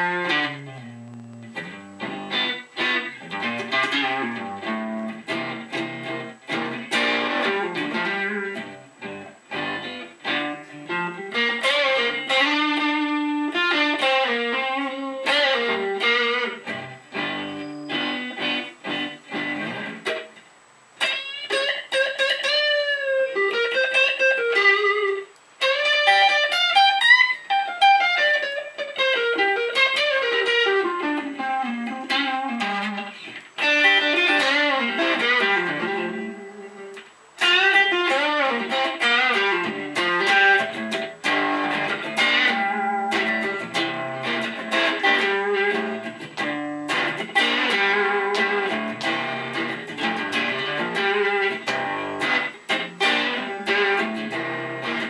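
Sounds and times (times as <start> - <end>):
electric guitar blues lead: 0.0 - 55.0.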